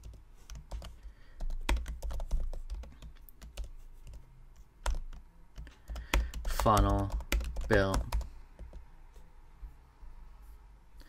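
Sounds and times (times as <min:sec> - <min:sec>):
typing on computer keyboard: 0:00.0 - 0:04.2, 0:04.8 - 0:08.8.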